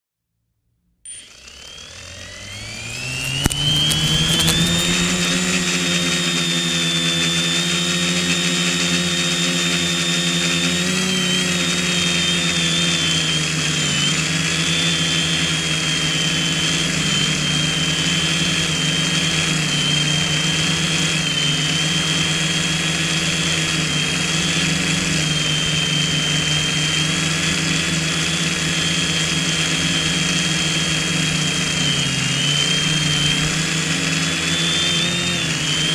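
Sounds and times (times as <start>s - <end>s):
drone motors whining: 1.1s - 35.9s
sharp click: 3.0s - 5.4s.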